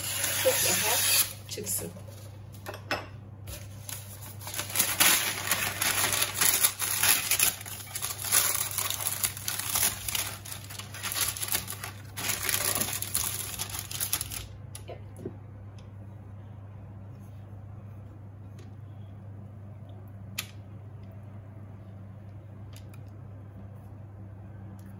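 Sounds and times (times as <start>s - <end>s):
parchment paper crinkling: 3.5s - 14.6s.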